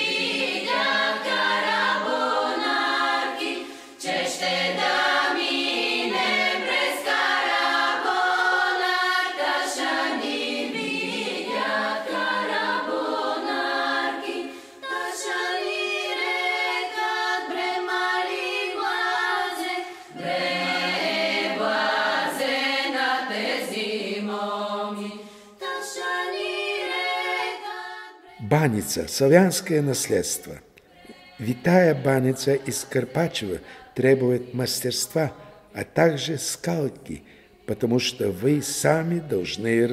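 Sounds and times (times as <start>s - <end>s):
a cappella choir singing: 0.0s - 39.9s.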